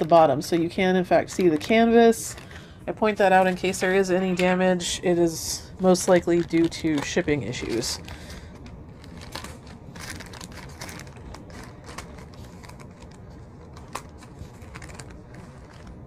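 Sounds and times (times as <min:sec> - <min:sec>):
plastic bag crinkling: 0:05.8 - 0:16.0.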